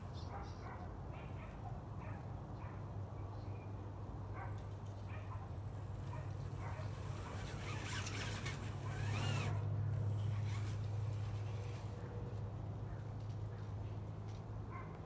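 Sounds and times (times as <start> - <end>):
steady low hum: 0.0 - 14.6
rc car motor whining: 6.4 - 11.9.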